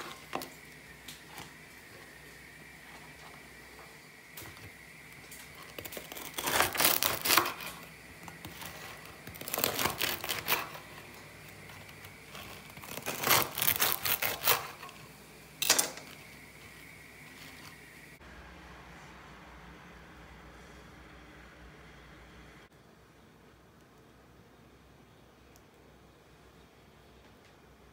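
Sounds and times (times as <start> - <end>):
knife sawing through bread crust: 5.7 - 7.8, 8.4 - 11.1, 11.8 - 15.0.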